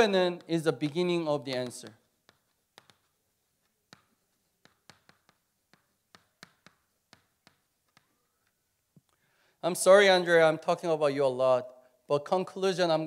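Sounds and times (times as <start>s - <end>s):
chalk clicking on chalkboard: 0.0s - 8.6s.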